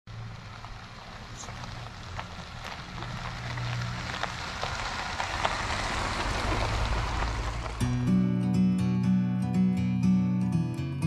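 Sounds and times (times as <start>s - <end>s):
vehicle engine hum: 0.0s - 9.6s
tyres rolling over gravel: 0.1s - 8.1s.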